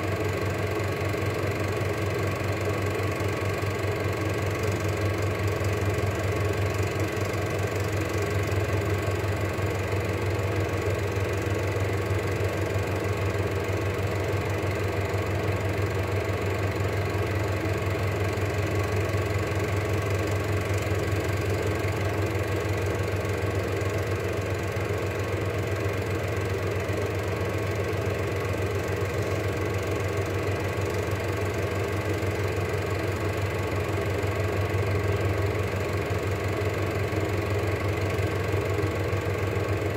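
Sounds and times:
film projector whirring and clattering: 0:00.0 - 0:39.9.

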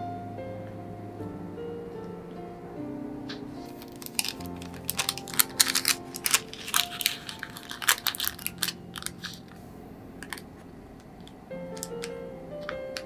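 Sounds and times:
wax paper crinkling: 0:03.6 - 0:09.6.

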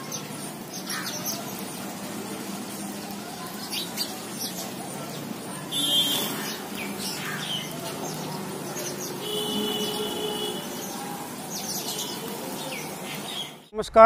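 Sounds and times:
sparrows chirping: 0:00.0 - 0:13.7.

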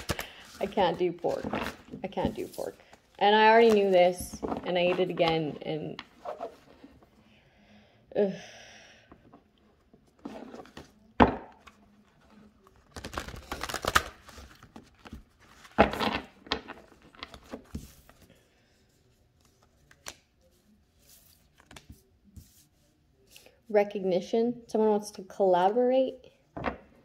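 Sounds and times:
cards being shuffled: 0:00.0 - 0:06.8, 0:11.6 - 0:18.3, 0:19.4 - 0:20.4, 0:21.0 - 0:22.6.

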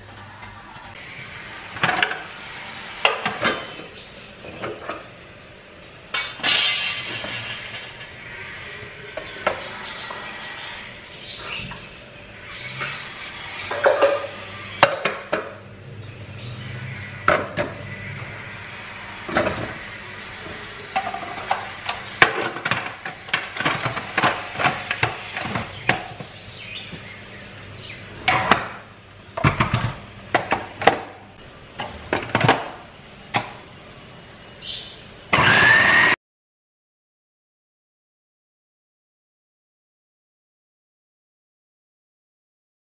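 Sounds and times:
food processor motor whirring: 0:35.3 - 0:36.2.

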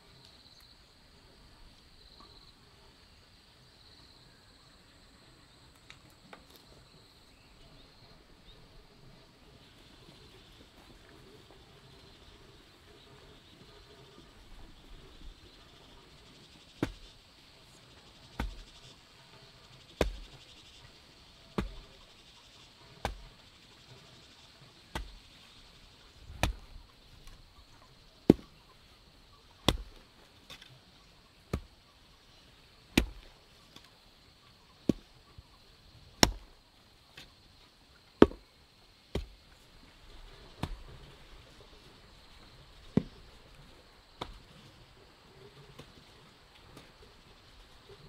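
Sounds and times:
garden hoe chopping into soil: 0:16.7 - 0:17.2, 0:18.3 - 0:19.0, 0:19.9 - 0:20.4, 0:21.4 - 0:22.1, 0:22.8 - 0:23.4, 0:24.8 - 0:25.4, 0:26.2 - 0:27.4, 0:28.2 - 0:28.6, 0:29.6 - 0:30.8, 0:31.5 - 0:31.7, 0:32.9 - 0:33.9, 0:34.8 - 0:35.1, 0:36.2 - 0:36.6, 0:38.2 - 0:38.5, 0:39.1 - 0:39.4, 0:40.5 - 0:41.1, 0:42.8 - 0:43.2, 0:44.2 - 0:44.6.

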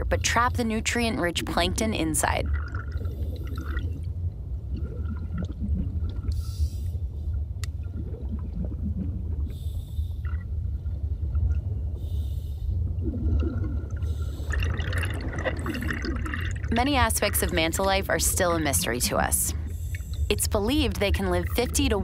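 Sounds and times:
bubbling: 0:00.0 - 0:22.0
low underwater rumble: 0:00.0 - 0:22.0
diver breathing through regulator: 0:09.4 - 0:10.3, 0:12.0 - 0:12.8, 0:14.0 - 0:14.7.

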